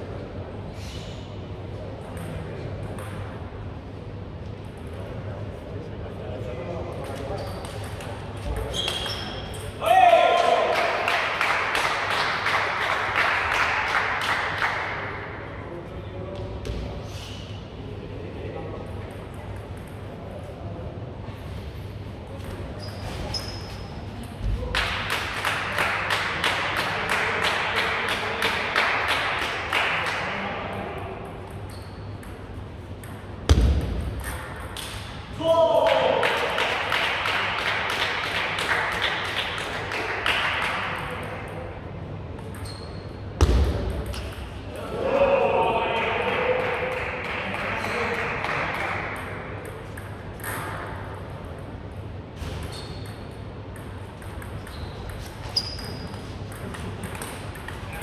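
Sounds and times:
voices and hall noise: 0:00.0 - 0:58.0
crowd clapping: 0:10.3 - 0:15.2, 0:24.7 - 0:30.5, 0:35.8 - 0:41.1, 0:46.0 - 0:49.4.

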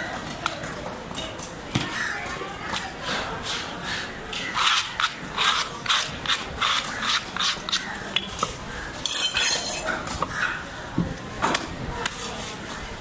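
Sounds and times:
knife scraping wooden block: 0:03.0 - 0:08.1, 0:09.0 - 0:10.6.

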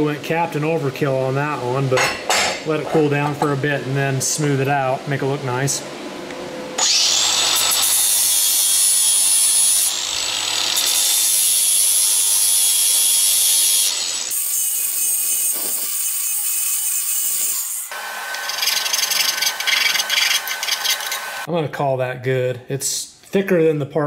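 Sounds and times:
angle grinder grinding metal: 0:06.8 - 0:21.5.

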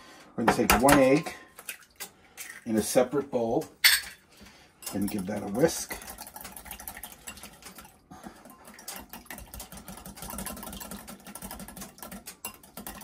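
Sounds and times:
whisk clicking against glass bowl: 0:09.3 - 0:13.0.

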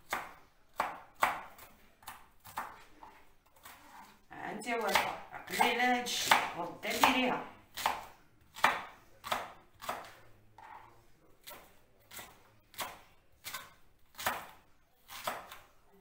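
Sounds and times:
knife chopping vegetables: 0:00.0 - 0:15.8.

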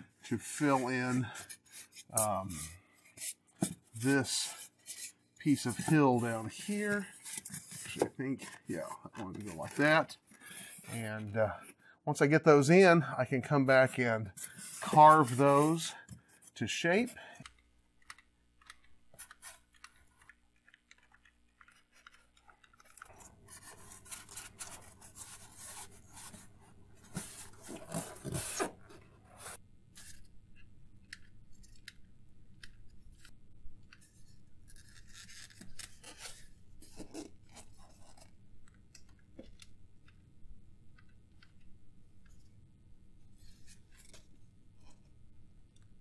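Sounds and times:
foam blocks scratching and rubbing: 0:00.3 - 0:11.6, 0:14.4 - 0:16.6, 0:19.1 - 0:30.2.

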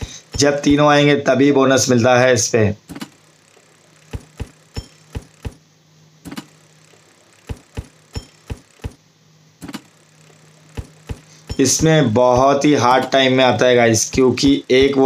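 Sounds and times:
faint steady hum: 0:00.0 - 0:15.0
slot reel stop clicks: 0:02.9 - 0:03.2, 0:06.2 - 0:06.6, 0:07.4 - 0:09.0, 0:09.6 - 0:10.0.

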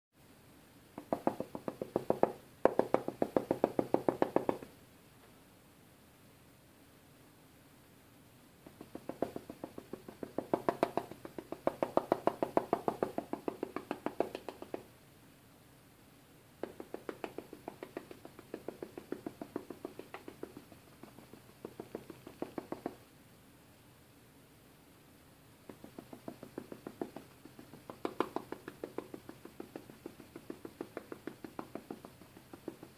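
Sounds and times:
paintbrush tapping: 0:00.9 - 0:04.7, 0:08.6 - 0:14.9, 0:16.6 - 0:23.0, 0:25.6 - 0:32.9.

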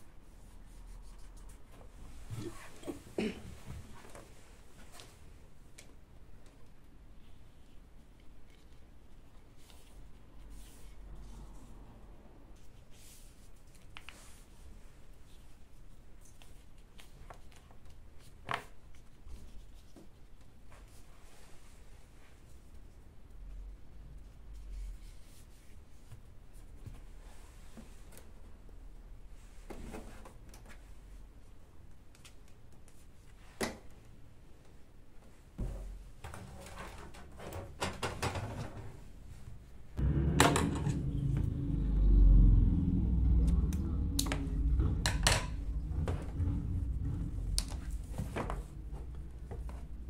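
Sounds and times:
low rumble: 0:40.0 - 0:50.0.

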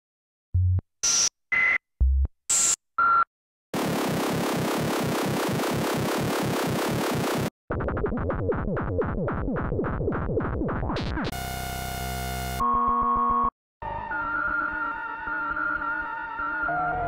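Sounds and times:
noisy pulsing synthesizer loop: 0:03.8 - 0:07.5
buzzing synth tone: 0:11.4 - 0:13.5.

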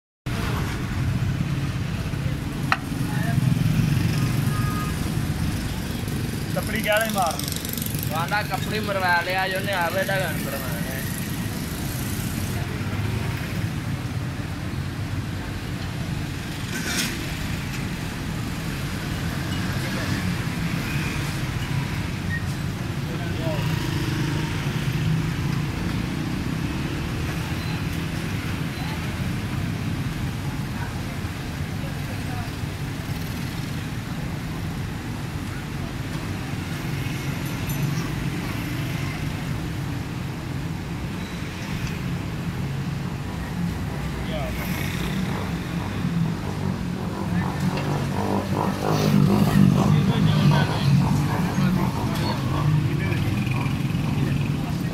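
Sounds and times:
traffic rumble: 0:00.3 - 0:54.9
indistinct voices: 0:44.2 - 0:54.9.

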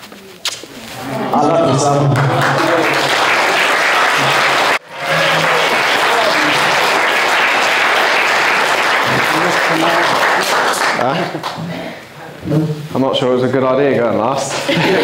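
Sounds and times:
guests applauding: 0:01.4 - 0:11.6.

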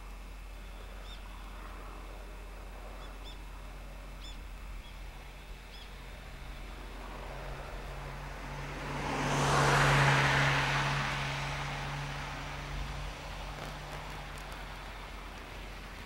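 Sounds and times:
low engine hum: 0:00.0 - 0:16.0
vehicle passing by: 0:06.0 - 0:16.0.

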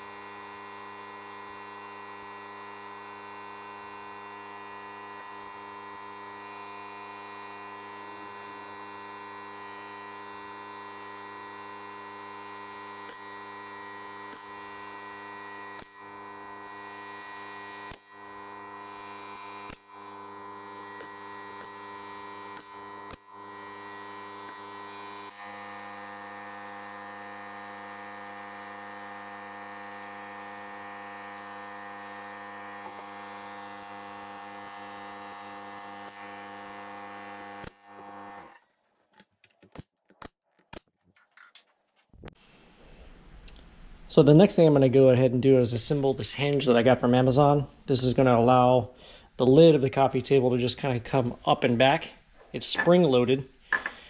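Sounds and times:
pneumatic nailer firing: 0:11.6 - 0:38.6.

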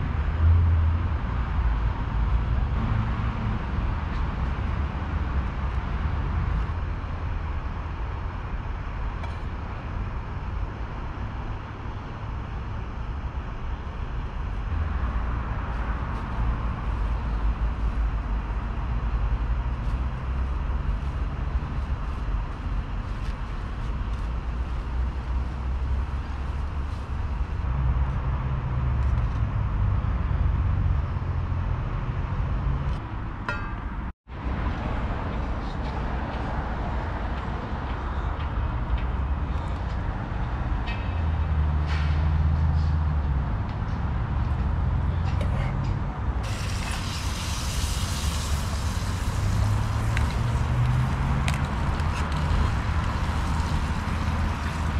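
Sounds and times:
road traffic rumble: 0:00.0 - 0:54.9.

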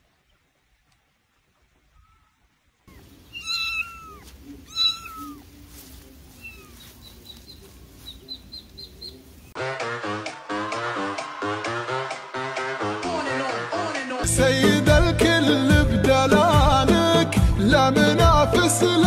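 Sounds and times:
faint high squeaks: 0:02.0 - 0:05.5
kitten meowing loudly: 0:02.9 - 0:05.4.

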